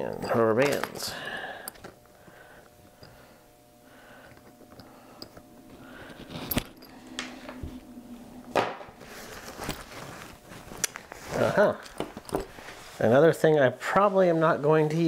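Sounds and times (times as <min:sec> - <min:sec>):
rustling and rubbing: 0:08.9 - 0:15.0.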